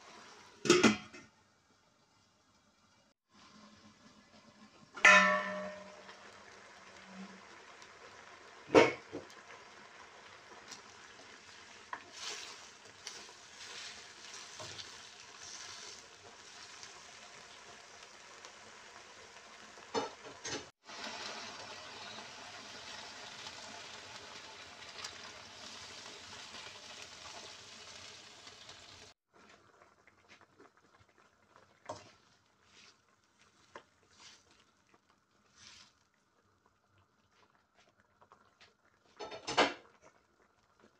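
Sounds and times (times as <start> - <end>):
sauce bubbling and sizzling: 0.0 - 0.7, 1.3 - 40.9.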